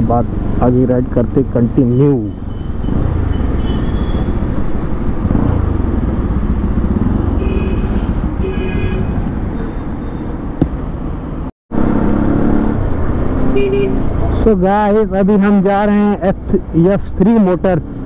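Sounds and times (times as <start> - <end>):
city traffic: 0.0 - 18.0
car horn toots: 1.8 - 4.3, 7.4 - 9.2, 13.5 - 14.1
motorcycle engine running: 2.9 - 9.6.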